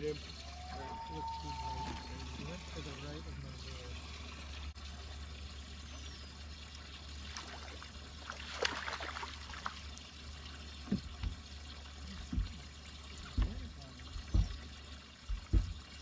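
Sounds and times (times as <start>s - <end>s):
water trickling: 0.0s - 16.0s
fish splashing at water surface: 6.8s - 16.0s.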